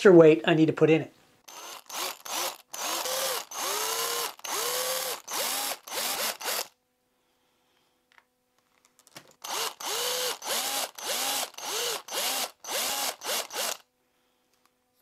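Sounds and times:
power drill bursts: 0:01.5 - 0:06.8, 0:09.4 - 0:13.8.

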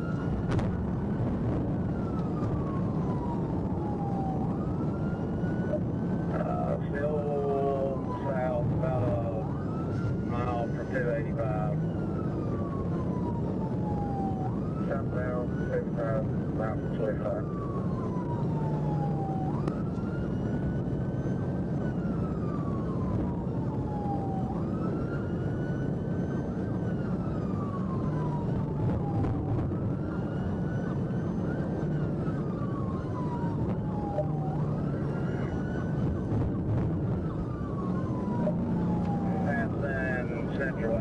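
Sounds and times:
car engine and road noise: 0:00.0 - 0:41.0
police siren wailing: 0:00.0 - 0:41.0.

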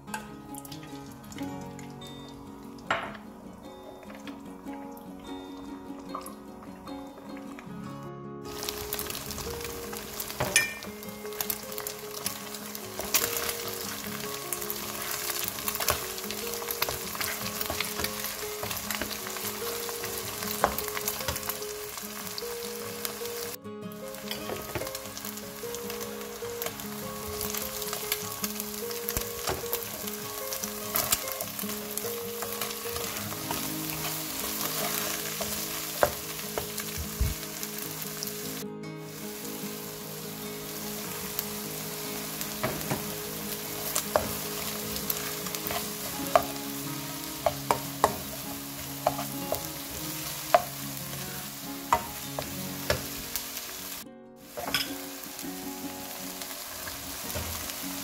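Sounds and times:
food sizzling in oil: 0:00.0 - 0:07.6, 0:08.4 - 0:58.0
spatula tapping and scraping pan: 0:14.8 - 0:21.6, 0:32.6 - 0:37.3, 0:42.6 - 0:43.2, 0:43.8 - 0:46.6, 0:47.4 - 0:49.7, 0:50.4 - 0:50.8, 0:51.9 - 0:53.2.

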